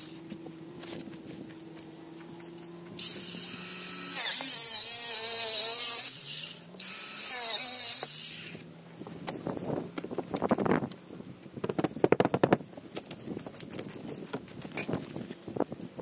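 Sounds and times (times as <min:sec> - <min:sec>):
electric power drill running: 0:03.0 - 0:08.7.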